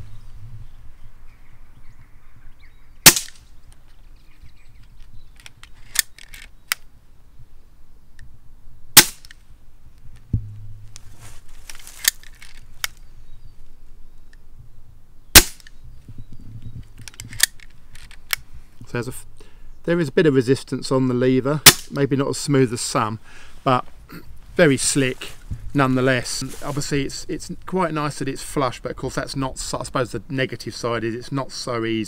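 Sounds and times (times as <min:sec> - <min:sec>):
air pistol shots cracking: 0:03.0 - 0:03.5, 0:09.0 - 0:09.4, 0:15.3 - 0:15.7, 0:21.6 - 0:22.0
metallic lever clicks: 0:05.4 - 0:06.8.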